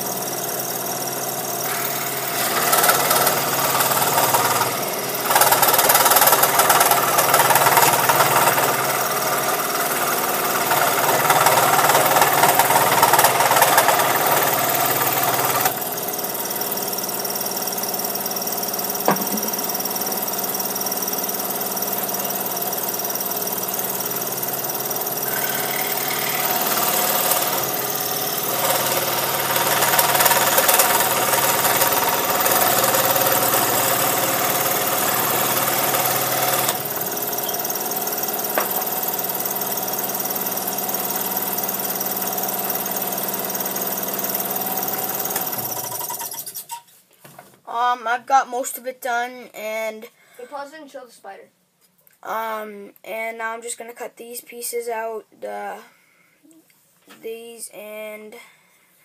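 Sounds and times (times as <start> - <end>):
scroll saw cutting wood: 1.6 - 16.8, 21.4 - 46.9.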